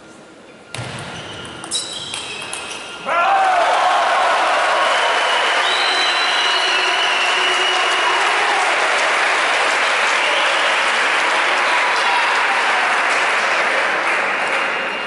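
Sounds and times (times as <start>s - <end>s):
spectators applauding: 3.3s - 15.0s.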